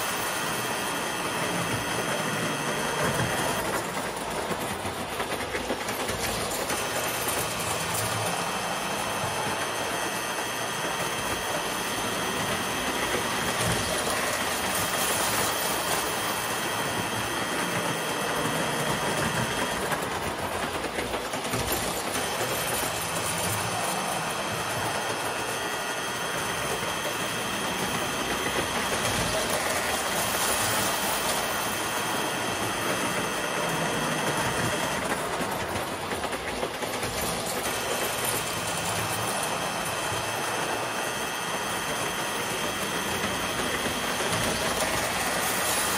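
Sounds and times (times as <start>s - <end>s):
toy train motor whine: 0.0s - 45.9s
wheels clattering over rails: 1.4s - 45.9s.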